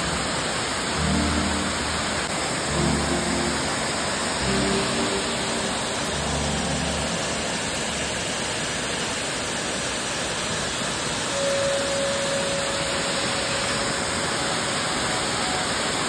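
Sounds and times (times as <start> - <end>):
steady tone: 0.0 - 8.7, 11.3 - 16.0
waterfall roaring: 0.0 - 16.0.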